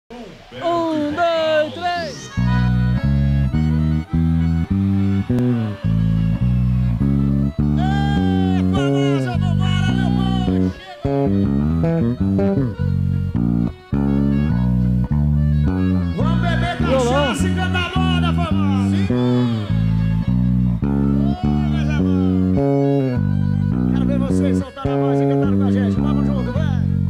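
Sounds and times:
live band playing: 0:00.3 - 0:27.0
electric bass guitar notes: 0:02.3 - 0:27.0
person singing: 0:16.7 - 0:20.0.

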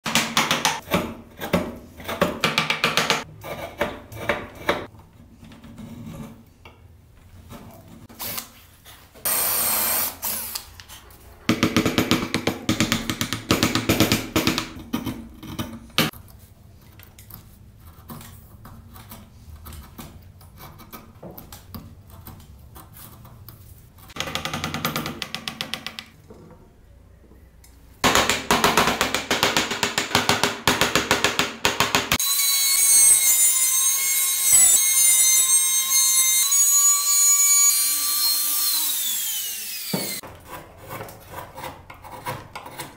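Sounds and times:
power tool running: 0:32.1 - 0:40.2.

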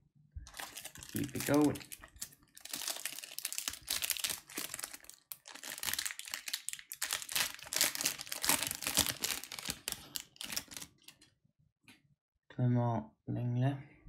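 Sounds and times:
wrapper crinkling: 0:00.5 - 0:11.3.

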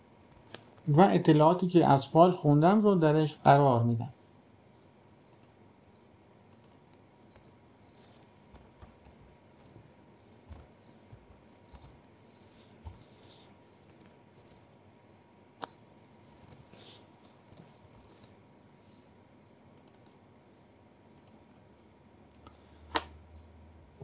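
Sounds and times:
keyboard typing clicks: 0:00.2 - 0:00.9, 0:05.2 - 0:05.6, 0:06.5 - 0:12.0, 0:13.8 - 0:14.7, 0:16.4 - 0:16.8, 0:17.4 - 0:18.4, 0:19.8 - 0:20.2, 0:21.1 - 0:21.5.

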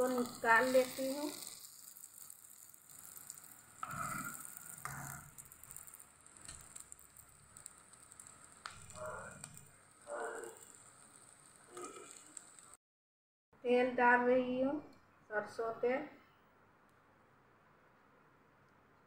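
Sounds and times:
eggs sizzling in oil: 0:00.0 - 0:12.8.

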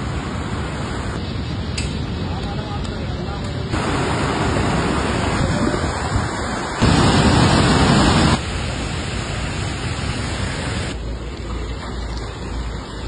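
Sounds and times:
fast river rushing: 0:00.0 - 0:01.2, 0:03.8 - 0:11.1.

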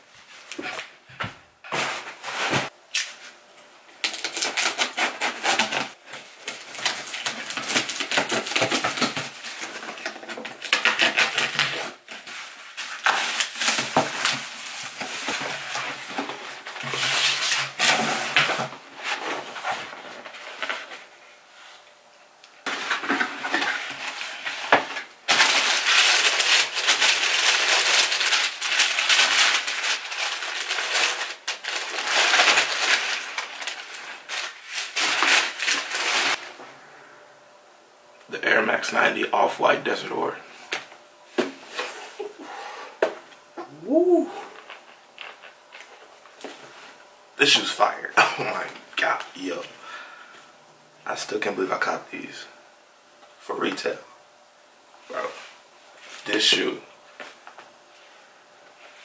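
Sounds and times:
cardboard flaps and tape scraping: 0:01.7 - 0:02.8
plastic and tissue paper rustling: 0:01.7 - 0:03.4, 0:04.0 - 0:21.8, 0:22.6 - 0:36.6.

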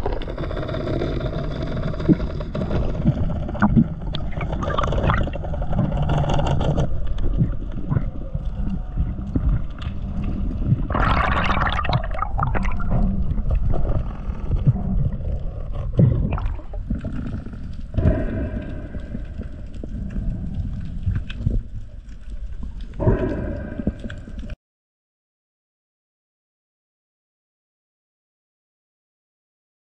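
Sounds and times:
water sloshing and gurgling: 0:00.0 - 0:00.9, 0:02.0 - 0:24.6
water splashing: 0:03.0 - 0:24.0.

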